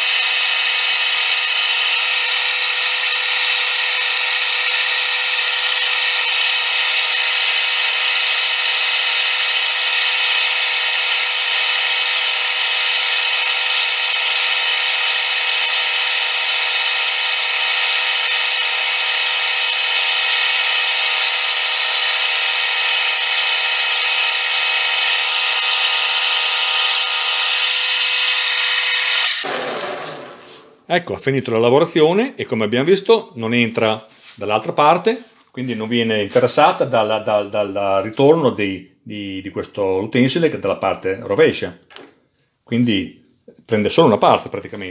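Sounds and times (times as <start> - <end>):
lathe machining metal: 0.0 - 30.4.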